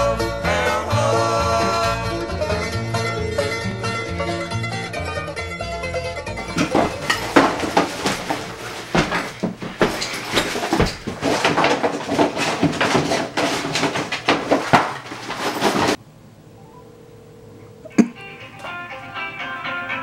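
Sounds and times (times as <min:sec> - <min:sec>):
rustling fabric and papers: 0:06.4 - 0:16.0.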